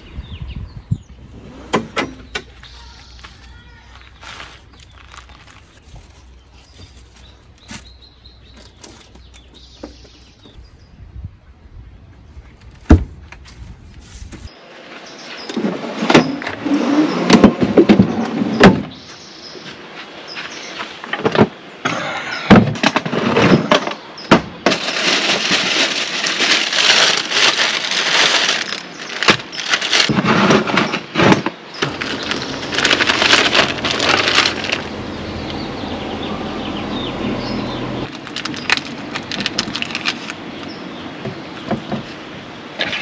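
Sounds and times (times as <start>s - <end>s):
loud rustling: 24.6s - 35.0s.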